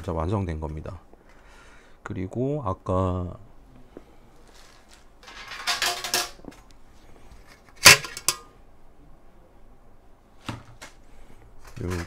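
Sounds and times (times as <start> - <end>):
metal parts rattling: 5.2 - 6.4, 7.8 - 8.4
sharp metal clank: 7.8 - 8.5.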